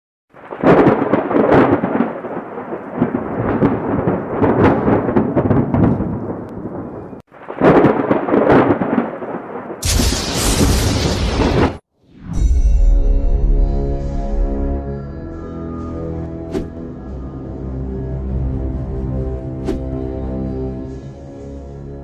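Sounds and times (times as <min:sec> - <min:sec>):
rolling thunder rumble: 0:00.4 - 0:11.8
hissing crash: 0:09.8 - 0:13.7.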